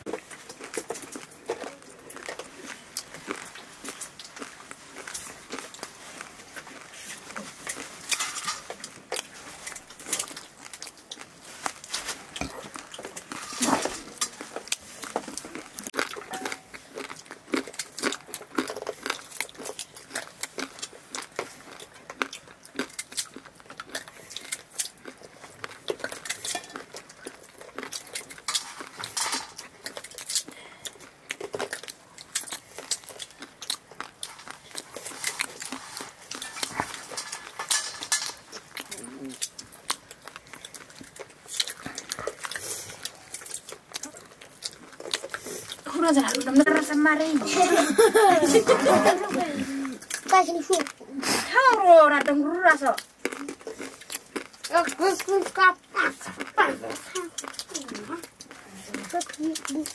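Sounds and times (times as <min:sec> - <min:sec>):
potato wedges dropping into metal bowl: 0:36.4 - 0:38.4.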